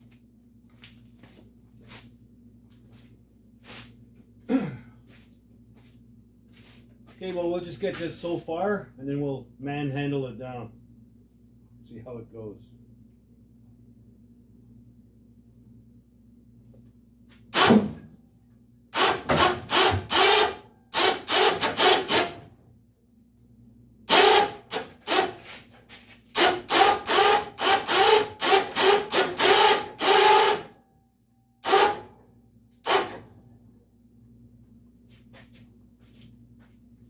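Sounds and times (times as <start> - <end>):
hand winch ratcheting and creaking: 19.0 - 22.4, 24.1 - 25.4, 26.4 - 30.7.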